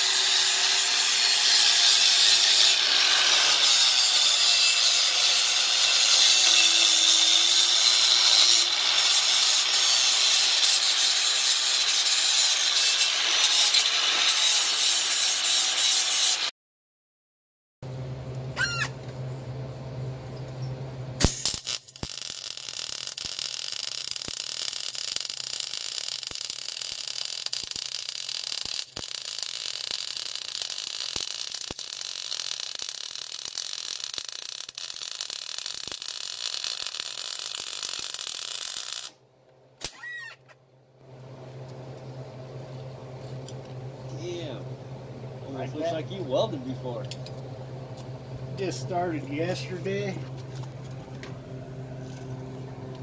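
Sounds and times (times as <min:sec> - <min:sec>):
welding arc crackling: 0:00.0 - 0:16.5, 0:21.2 - 0:39.2
low hum: 0:17.8 - 0:22.9, 0:40.5 - 0:53.0.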